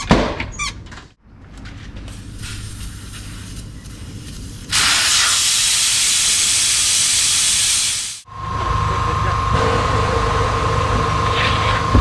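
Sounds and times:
air hissing out of tire: 2.1s - 3.6s, 4.2s - 8.3s.

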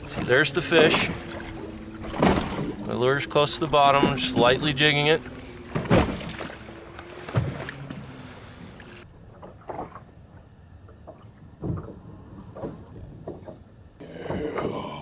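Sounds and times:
water around boat hull: 0.0s - 15.0s
wind: 0.0s - 15.0s
knocks and thumps: 11.6s - 13.6s.

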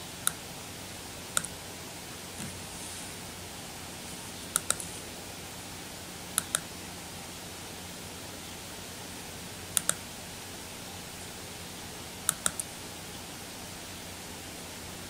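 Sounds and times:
faint hum: 0.0s - 15.0s
microphone hiss: 0.0s - 15.0s
mouse button clicking: 4.5s - 4.9s, 6.4s - 6.7s, 12.3s - 12.7s.

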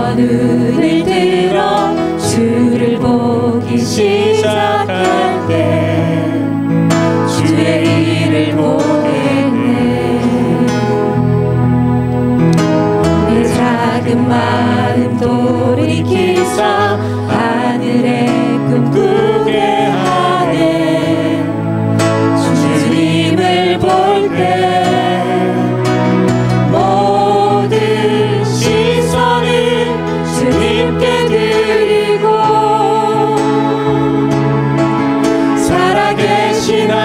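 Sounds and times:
group singing a praise song: 0.0s - 6.6s, 7.2s - 11.1s, 13.2s - 21.7s, 22.3s - 34.2s, 35.5s - 37.0s
acoustic guitar: 0.0s - 37.0s.

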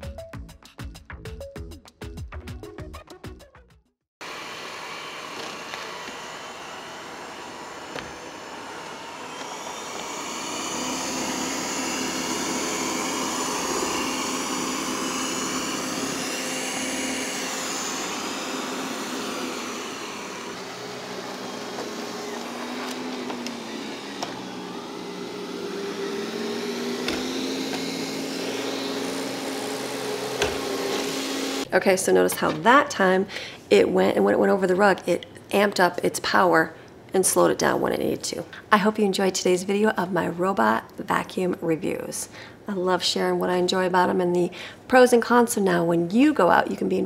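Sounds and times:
robot vacuum motor whine: 4.2s - 31.7s.

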